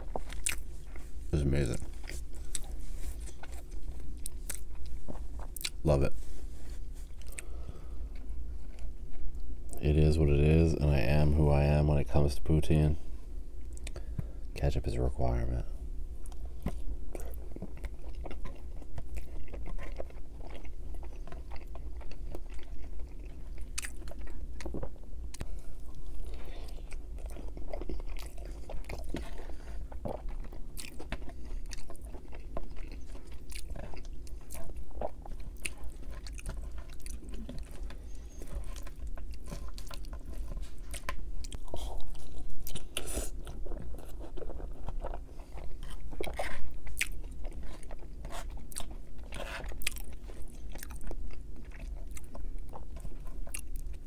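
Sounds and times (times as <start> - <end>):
close chewing and crunching: 0.0 - 54.0.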